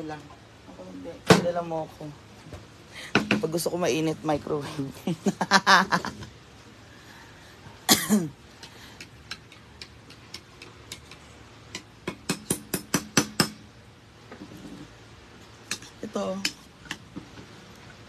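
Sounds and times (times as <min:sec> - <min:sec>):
person coughing: 0:07.9 - 0:08.4.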